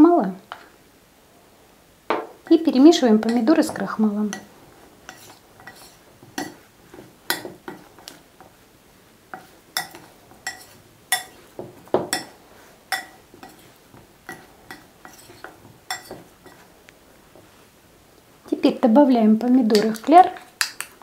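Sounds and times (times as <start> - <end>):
spoon clinking against glass bowl: 9.8 - 11.4, 12.9 - 13.6.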